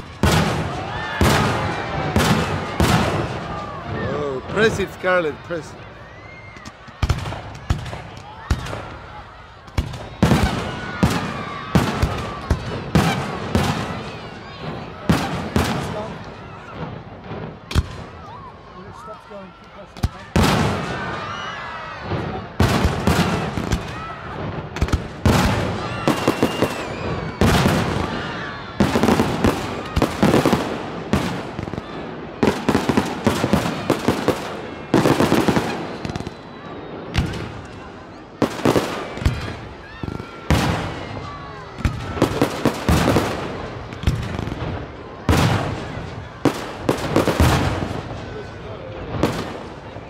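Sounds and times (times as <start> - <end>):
firework crackling reports: 0.0 - 5.9, 7.0 - 19.0, 20.0 - 50.0
firework shells bursting with bangs: 0.2 - 3.6, 9.7 - 16.0.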